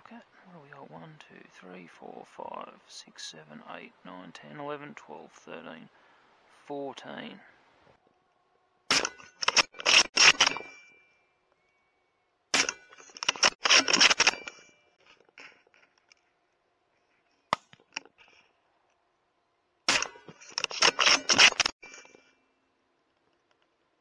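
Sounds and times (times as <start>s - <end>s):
sharp click: 12.6s - 14.5s.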